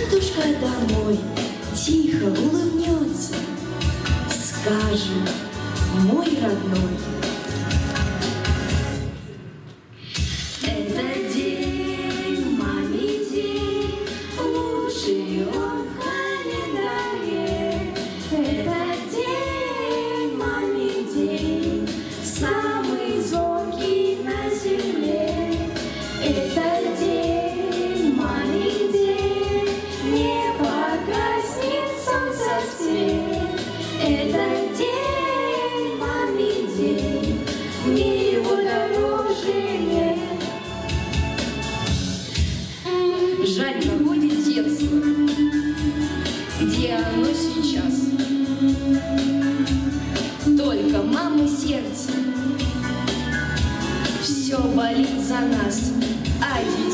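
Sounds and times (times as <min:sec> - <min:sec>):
instrumental accompaniment: 0:00.0 - 0:56.9
children singing: 0:10.9 - 0:25.7, 0:26.3 - 0:40.6.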